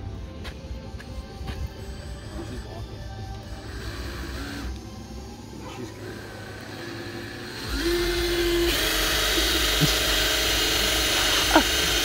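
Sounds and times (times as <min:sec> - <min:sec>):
power drill boring into metal: 0:03.5 - 0:04.8, 0:06.0 - 0:12.0.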